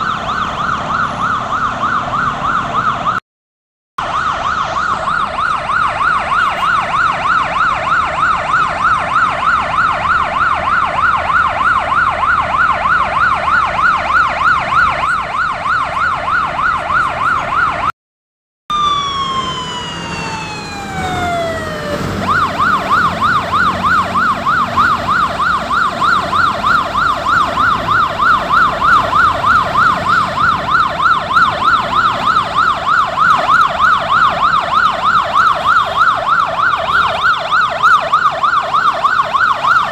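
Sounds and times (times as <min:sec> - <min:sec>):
emergency siren yelping: 0:00.0 - 0:03.2, 0:04.0 - 0:18.0, 0:18.7 - 0:39.9
faint traffic rumble: 0:18.7 - 0:39.9.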